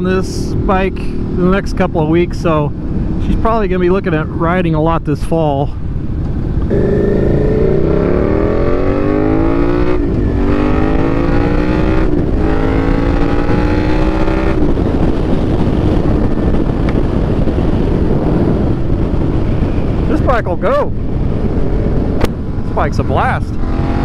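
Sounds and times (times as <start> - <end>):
wind and road noise: 0.0 - 24.0
motorcycle engine accelerating: 6.0 - 20.1, 23.5 - 24.0.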